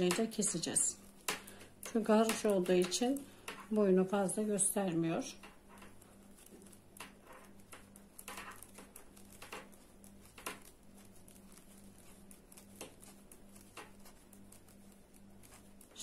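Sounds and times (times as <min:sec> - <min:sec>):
knitting needles clicking: 0:00.0 - 0:03.8.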